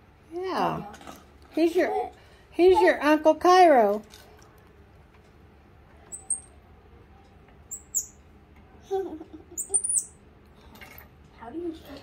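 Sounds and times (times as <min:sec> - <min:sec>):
monkey high-pitched chirps: 0:06.1 - 0:06.5, 0:07.7 - 0:08.2, 0:09.5 - 0:10.2.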